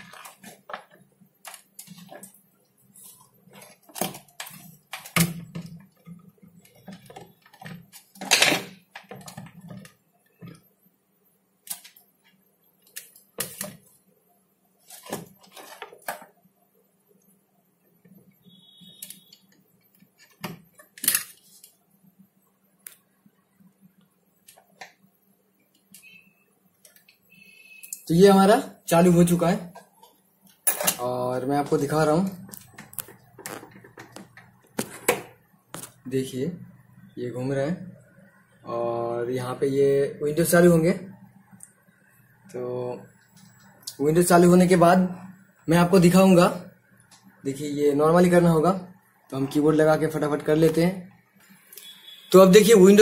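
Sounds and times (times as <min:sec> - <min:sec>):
cables and plastic connectors clicking: 0:00.0 - 0:02.4, 0:03.0 - 0:10.6, 0:11.6 - 0:14.0, 0:18.1 - 0:21.8, 0:26.8 - 0:27.2, 0:32.4 - 0:36.0.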